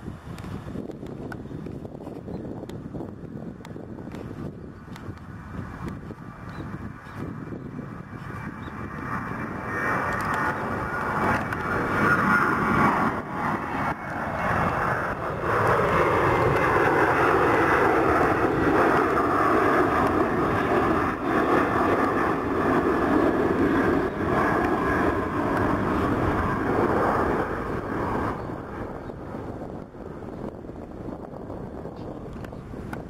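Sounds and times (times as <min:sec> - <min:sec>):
jet engines roaring: 0:00.0 - 0:33.0.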